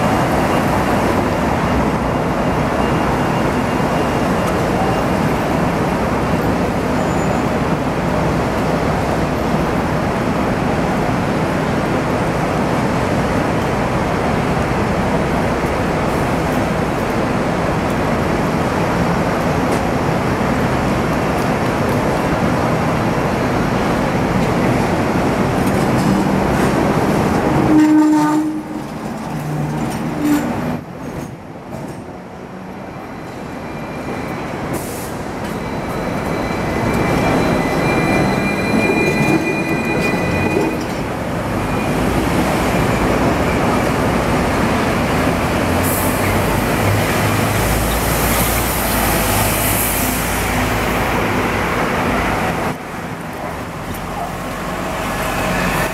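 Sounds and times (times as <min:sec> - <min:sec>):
tram wheels squealing on rails: 0:00.0 - 0:07.9, 0:23.8 - 0:52.8, 0:54.0 - 0:55.9
bus engine rumbling: 0:00.0 - 0:55.9
street traffic noise: 0:00.0 - 0:55.9.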